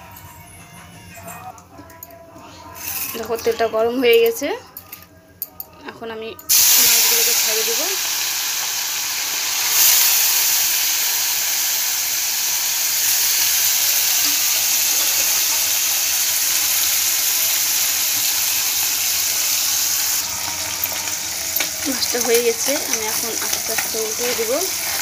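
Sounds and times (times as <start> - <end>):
fish sizzling in hot oil: 6.5 - 25.0.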